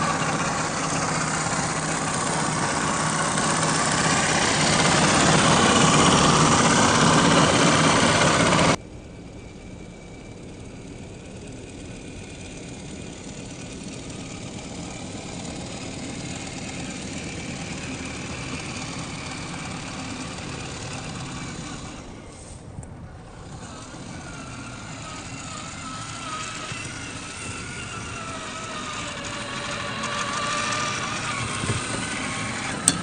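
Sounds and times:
loud rushing noise: 0:00.0 - 0:08.8
electric motor and gearbox whine: 0:00.0 - 0:33.0.

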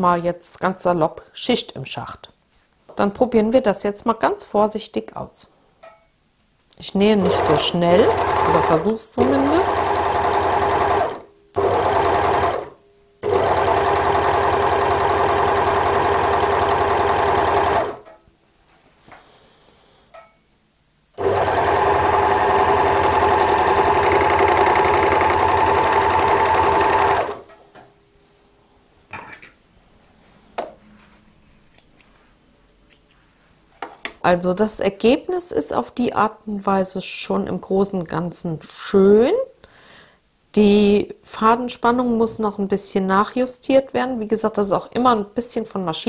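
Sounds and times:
overlocker stitching: 0:07.2 - 0:18.1, 0:21.2 - 0:27.5.

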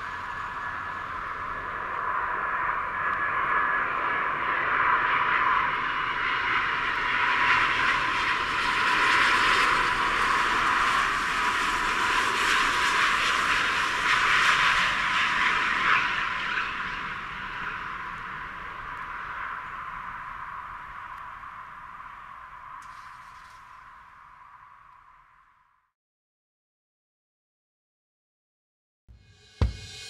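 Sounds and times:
jet engines roaring: 0:00.0 - 0:23.6.

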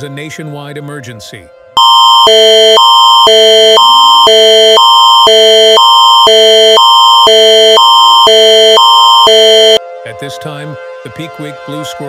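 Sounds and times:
emergency alert tone alternating chords: 0:01.8 - 0:09.8.

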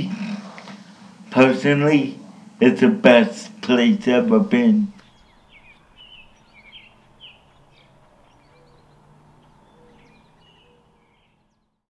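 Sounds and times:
background hiss: 0:00.0 - 0:11.7
small birds chirping: 0:03.5 - 0:11.9.

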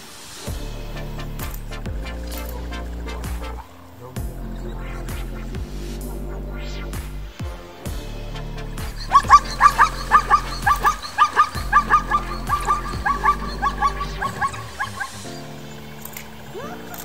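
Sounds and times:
electronic music with deep bass: 0:00.0 - 0:17.0
high yelping animal calls: 0:09.0 - 0:15.3.

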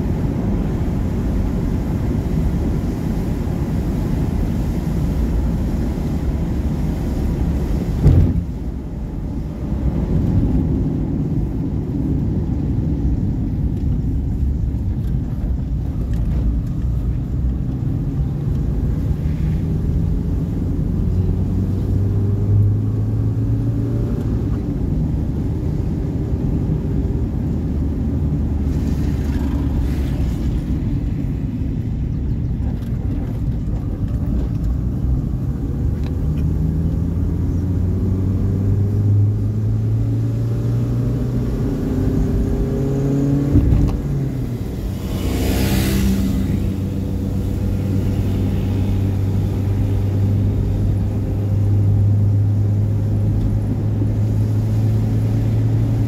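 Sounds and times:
car engine and tyres rumbling: 0:00.0 - 0:56.0
short thump: 0:08.0 - 0:08.6.

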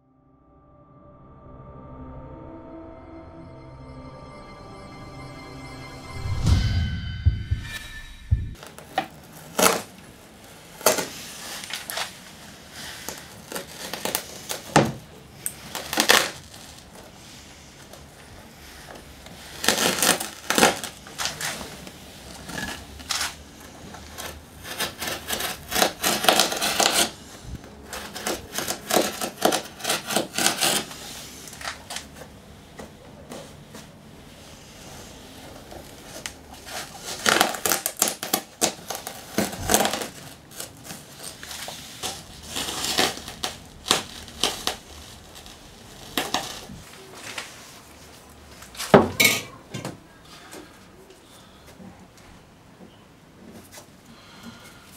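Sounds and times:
fibreglass mat crinkling: 0:35.9 - 0:47.6.

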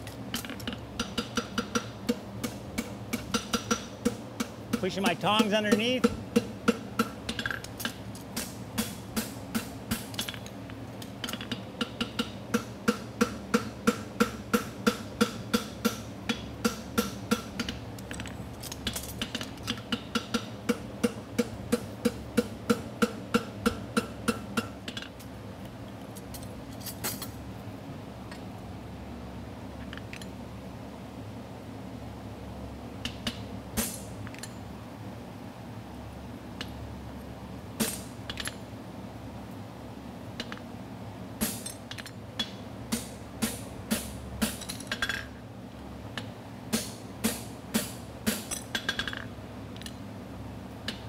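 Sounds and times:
cooler fan buzzing: 0:00.0 - 0:51.0
hammer striking horseshoe on anvil: 0:00.4 - 0:07.7, 0:11.2 - 0:17.8.

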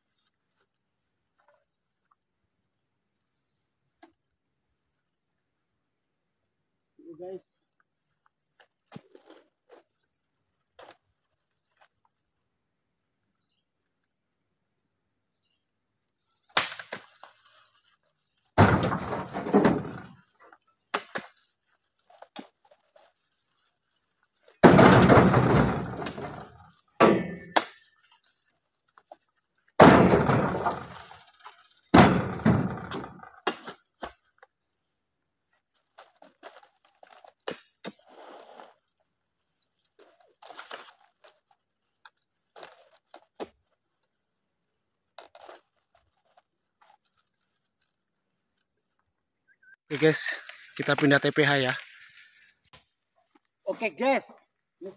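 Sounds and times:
fruit bunches thumping into basket: 0:18.6 - 0:20.2, 0:24.6 - 0:27.8, 0:29.8 - 0:31.2, 0:31.9 - 0:33.8
high insect buzz: 0:37.6 - 0:41.0.

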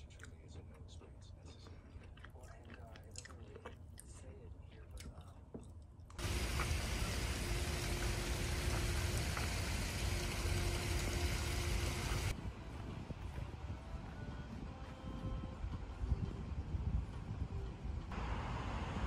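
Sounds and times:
deep outdoor rumble: 0:06.2 - 0:14.1.

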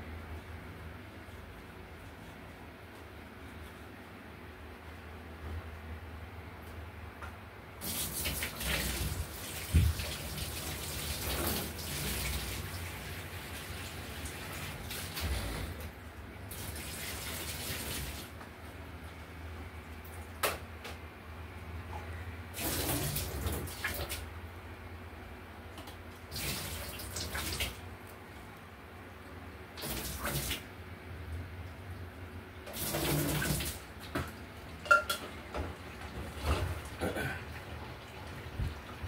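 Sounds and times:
tap water running: 0:07.8 - 0:15.9, 0:16.5 - 0:18.4, 0:22.5 - 0:24.3, 0:26.3 - 0:27.8, 0:29.8 - 0:30.7, 0:32.6 - 0:39.0
crockery clinking: 0:34.9 - 0:35.2.

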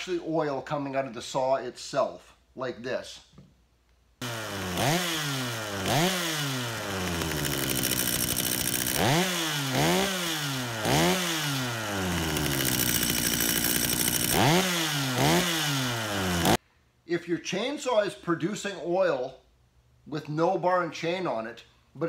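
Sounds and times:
chainsaw engine revving: 0:04.2 - 0:16.6.

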